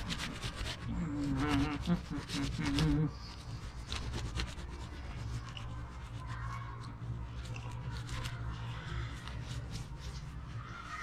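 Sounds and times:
cloth rubbing scrubbing strokes: 0.0s - 6.9s
low steady hum: 0.0s - 11.0s.

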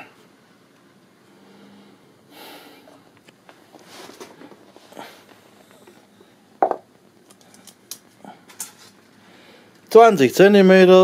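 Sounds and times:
soft rustling: 3.1s - 6.4s.

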